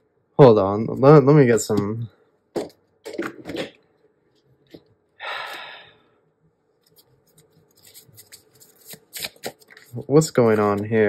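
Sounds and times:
cards shuffling: 0:06.8 - 0:11.0.

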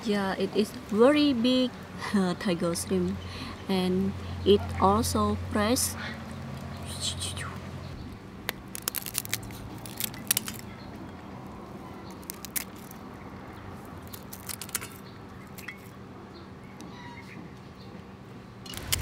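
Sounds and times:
scissors snipping shrimp shells: 0:08.4 - 0:10.8, 0:12.0 - 0:13.0, 0:13.9 - 0:16.0.

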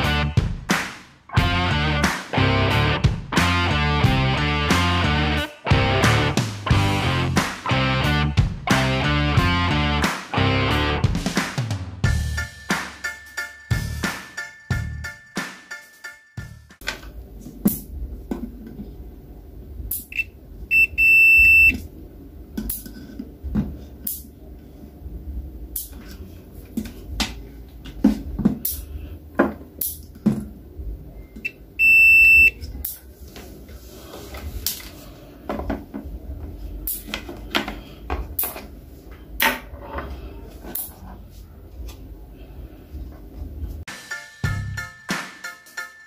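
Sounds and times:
multimeter continuity beeps: 0:20.1 - 0:21.8, 0:31.3 - 0:32.6.

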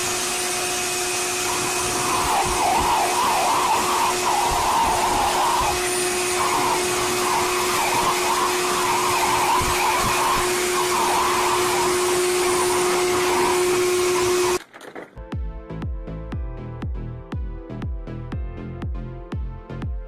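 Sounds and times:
blow dryer whooshing: 0:00.0 - 0:14.6.

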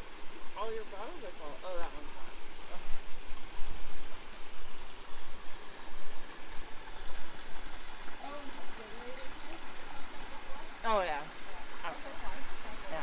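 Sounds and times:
creek water rushing over stones: 0:00.0 - 0:13.0.

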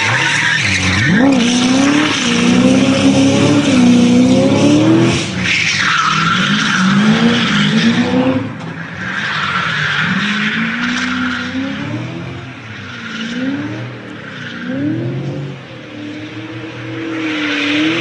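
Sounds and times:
car engine revving hard: 0:00.0 - 0:05.4.

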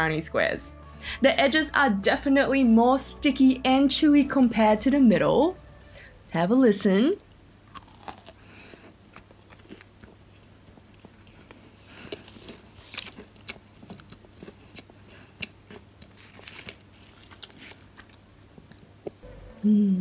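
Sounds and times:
brownie tearing and crackling: 0:12.2 - 0:13.6, 0:16.0 - 0:18.2.

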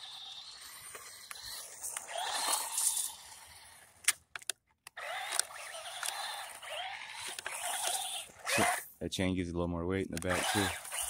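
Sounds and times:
toy truck electric motor whining: 0:00.0 - 0:04.1, 0:04.9 - 0:08.9, 0:10.2 - 0:11.0.

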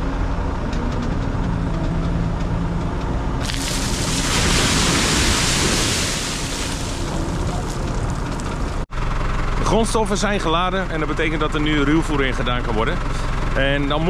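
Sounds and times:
tractor engine idling: 0:06.4 - 0:14.0.

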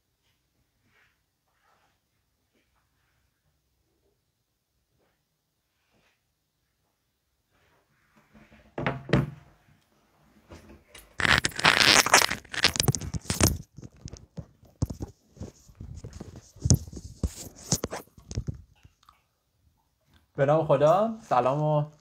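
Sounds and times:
cable rustling and scraping: 0:11.0 - 0:19.0.

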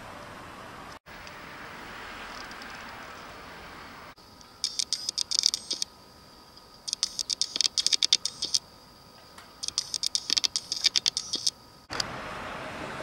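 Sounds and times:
bird bill scratching concrete: 0:06.9 - 0:08.6, 0:09.6 - 0:11.6.

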